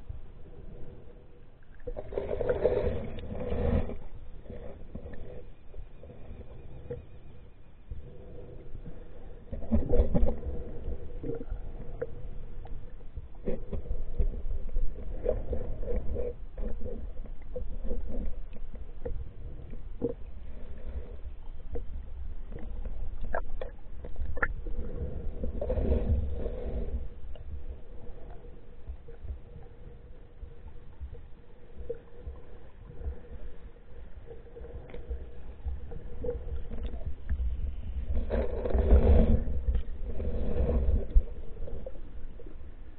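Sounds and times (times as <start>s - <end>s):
faint steady hum: 0.0s - 42.9s
underwater river rumble: 0.0s - 42.9s
water gurgles: 13.4s - 42.6s.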